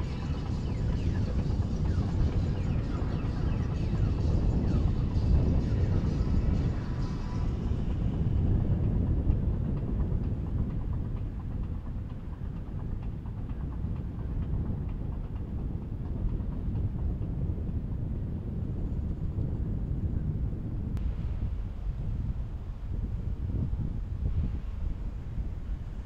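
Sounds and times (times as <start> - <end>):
churning boat wake: 0.0 - 19.1
yacht engines rumbling: 0.0 - 26.0.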